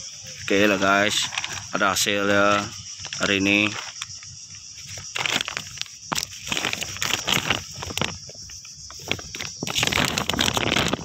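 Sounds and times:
insects droning: 0.0 - 11.0
plastic bag rustling: 2.4 - 11.0.

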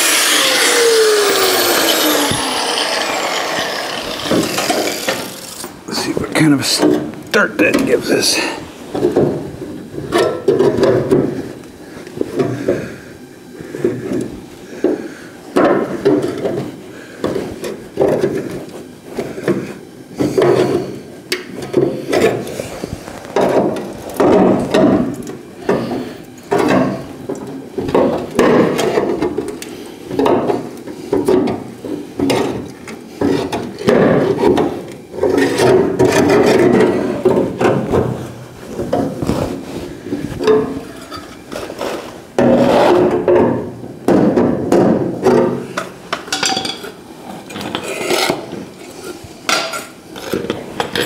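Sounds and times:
tool scraping sheet steel: 0.0 - 6.1, 40.5 - 43.3.

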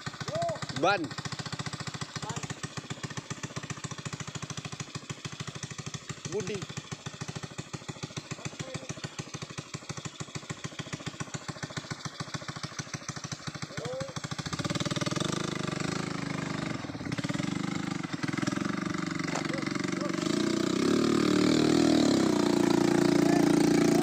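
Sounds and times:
motorcycle engine idling: 0.0 - 24.0.

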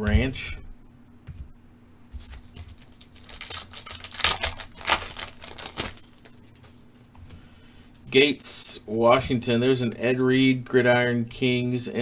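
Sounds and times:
foil pack crinkling and tearing: 2.6 - 6.4.

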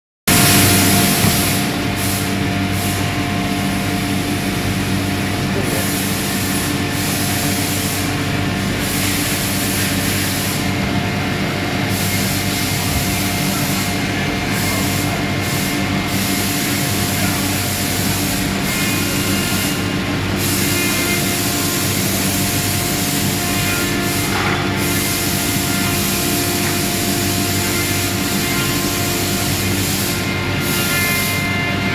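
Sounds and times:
machine hum: 0.3 - 31.9.

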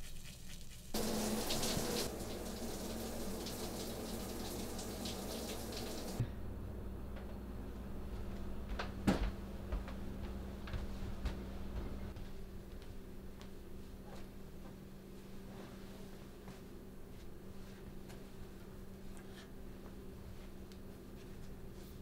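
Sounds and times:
low room hum: 0.0 - 22.0
tap running: 1.0 - 6.2.

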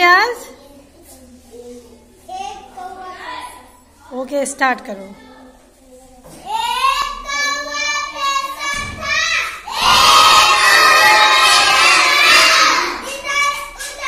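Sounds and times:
child reciting sing-song poem: 0.4 - 4.1, 5.2 - 9.7, 11.2 - 14.0
children shouting together: 6.5 - 14.0.

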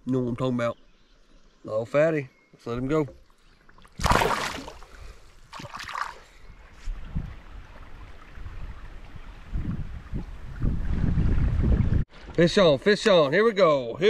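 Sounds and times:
water splashing: 3.0 - 9.2
wind rumble on microphone: 6.4 - 12.4.

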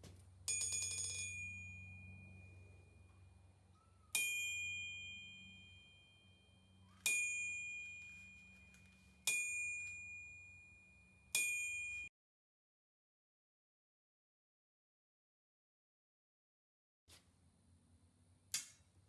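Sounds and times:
steel ball striking ringing anvil: 4.1 - 6.4.

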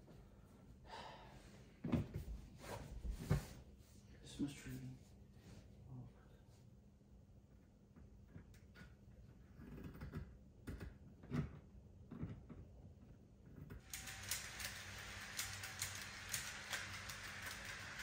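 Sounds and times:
model train rattling along track: 13.8 - 18.0
model train track being handled: 13.8 - 18.0.

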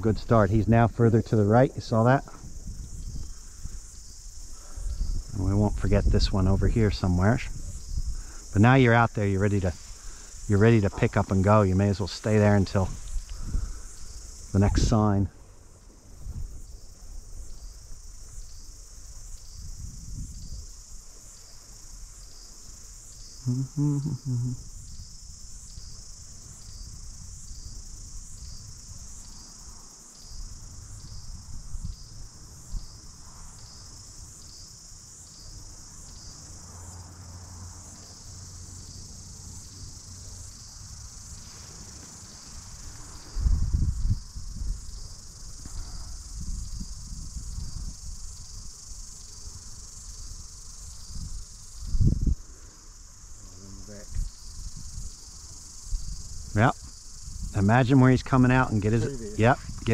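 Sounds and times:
cicadas singing: 0.0 - 59.9
short low sound: 23.5 - 24.6.

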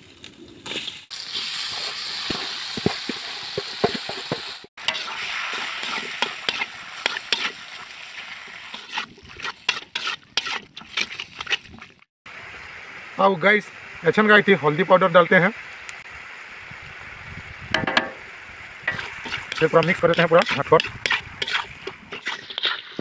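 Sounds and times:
food sizzling in oil: 0.7 - 11.6, 14.6 - 23.0
spatula scraping a metal pan: 4.8 - 7.6, 8.7 - 11.8, 18.9 - 23.0.

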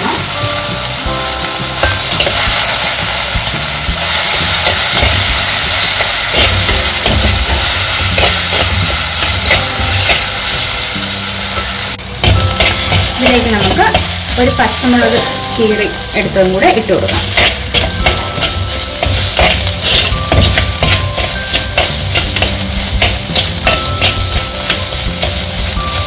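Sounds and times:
aromatics sizzling in hot oil: 0.0 - 26.0
steel spoon scraping pot: 4.4 - 10.2, 17.0 - 26.0.

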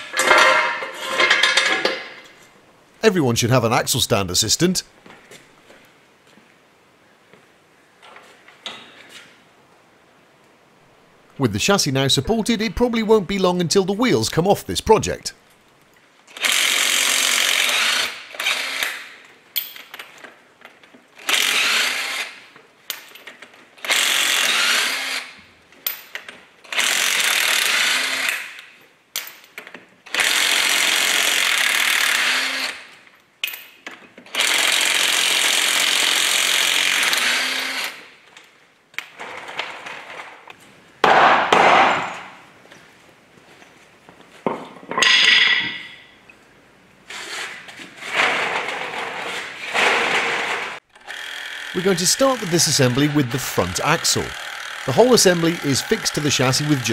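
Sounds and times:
impact wrench hammering: 41.0 - 42.3.

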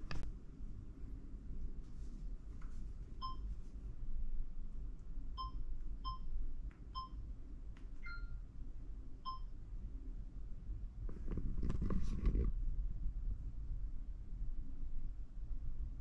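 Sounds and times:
short electronic beeps: 5.4 - 6.3, 7.0 - 7.2, 8.0 - 8.4.

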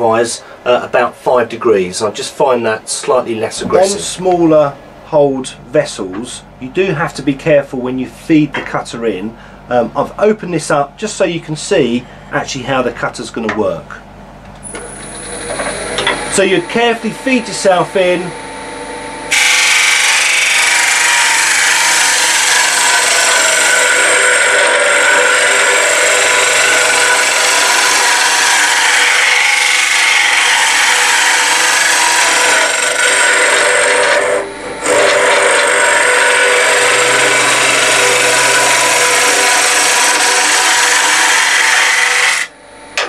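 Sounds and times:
lathe cutter hissing on wood: 19.3 - 42.5.

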